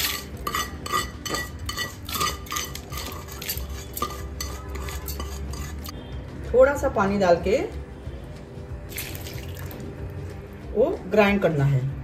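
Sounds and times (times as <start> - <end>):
spatula scraping a frying pan: 0.0 - 6.0.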